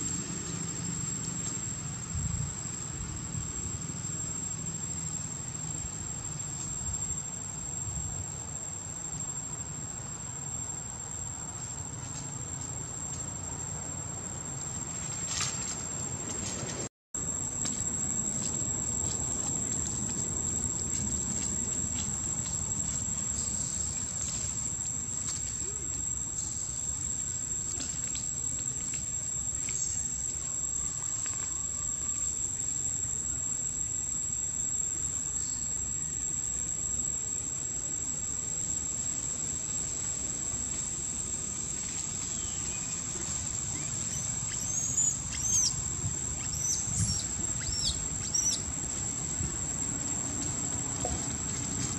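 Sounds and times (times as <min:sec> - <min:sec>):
insects droning: 0:00.0 - 0:51.9
outdoor background noise: 0:00.0 - 0:51.9
bird chirps: 0:43.7 - 0:45.8, 0:46.4 - 0:48.7.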